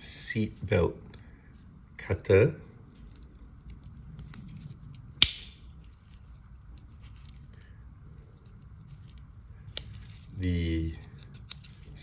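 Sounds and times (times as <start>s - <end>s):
pocket knife tools clicking: 11.1s - 11.8s.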